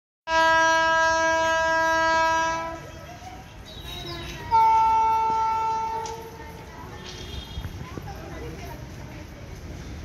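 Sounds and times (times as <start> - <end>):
locomotive horn blast: 0.3 - 2.9, 3.9 - 6.4.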